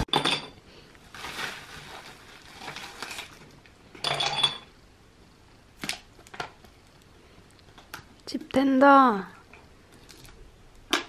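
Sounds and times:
plastic bag rustling: 1.0 - 3.7.

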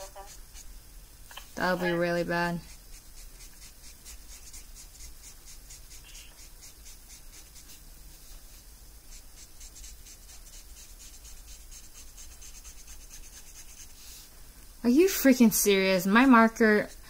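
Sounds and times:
marker scratching on paper: 0.0 - 0.7, 1.6 - 14.2.

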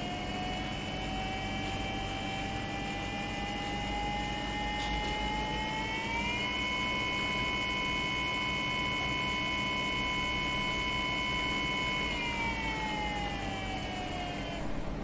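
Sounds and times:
electric motor whine: 0.0 - 15.0.

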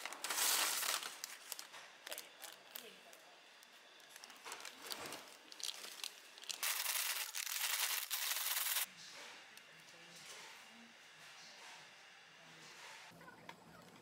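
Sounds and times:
paper bag of fries shaken: 0.0 - 1.6, 4.5 - 8.9
paper rustling and tearing: 0.0 - 2.6, 4.1 - 8.9.

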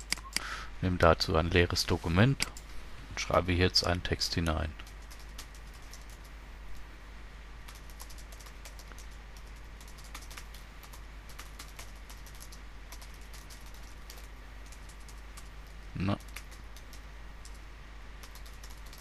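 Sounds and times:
typing on computer keyboard: 4.8 - 6.3, 7.7 - 17.6, 18.2 - 19.0.

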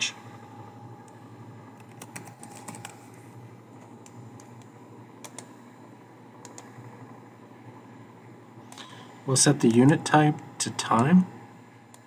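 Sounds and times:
faint steady hum: 0.0 - 12.0
computer keyboard keystrokes: 1.8 - 3.0, 5.2 - 5.5, 6.4 - 6.7.

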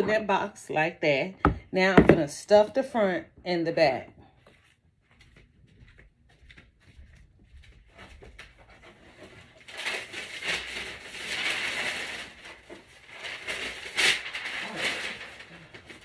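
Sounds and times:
tissue paper rustling: 7.9 - 16.0
sharp paper crackle: 9.2 - 16.0.

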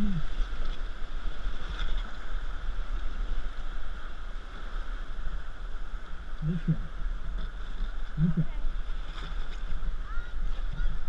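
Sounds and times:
low voice: 6.4 - 6.9.

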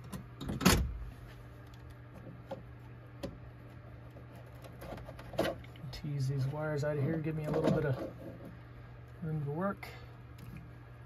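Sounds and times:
steady low hum: 0.0 - 11.0
hands handling wiring: 1.2 - 8.6.

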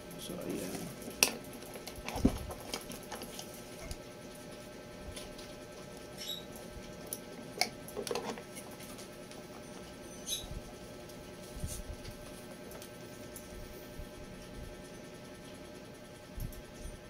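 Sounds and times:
plastic cables clicking and rustling: 0.6 - 4.0.

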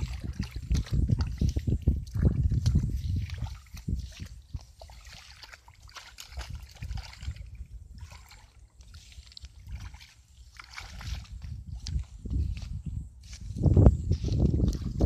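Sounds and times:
grass brushing legs: 0.0 - 7.4, 8.0 - 15.0
feet sloshing through mud: 0.0 - 15.0.

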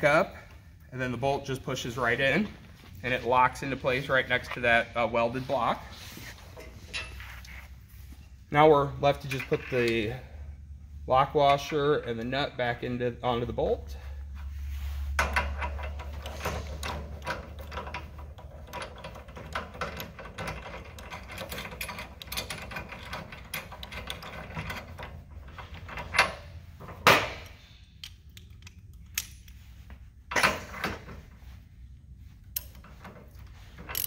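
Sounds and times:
metal nut clicking and rattling: 15.2 - 26.3, 27.4 - 29.6, 33.7 - 34.0
socket and ratchet clanking: 15.2 - 29.6, 32.5 - 34.0.

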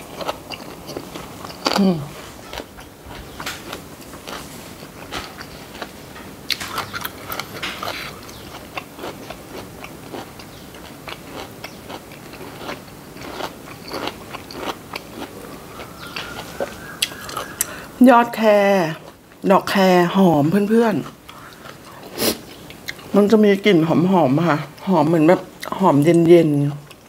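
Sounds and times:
person chewing food: 0.0 - 18.0, 21.0 - 23.2, 26.8 - 27.0.

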